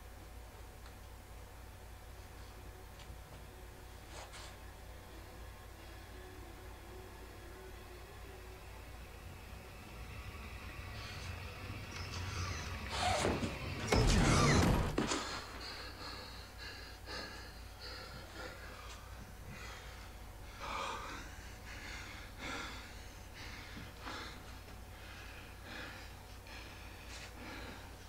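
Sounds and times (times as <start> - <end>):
man breathing heavily: 8.7 - 13.8, 15.0 - 28.0.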